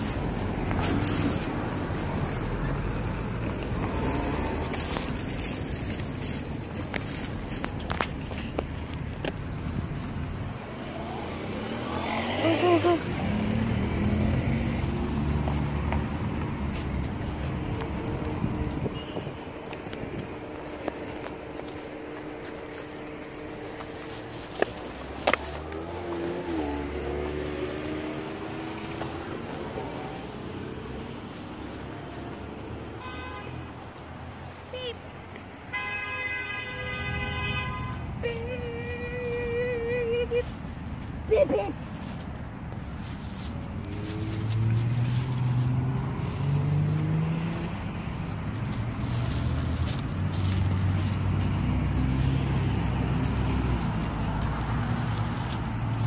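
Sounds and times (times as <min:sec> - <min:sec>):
cars driving past: 0:00.0 - 0:38.3, 0:39.0 - 0:56.0.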